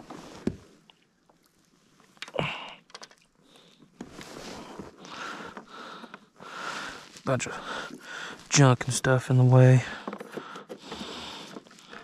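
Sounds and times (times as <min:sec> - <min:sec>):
knocks of gear in kayak: 0:09.9 - 0:12.0.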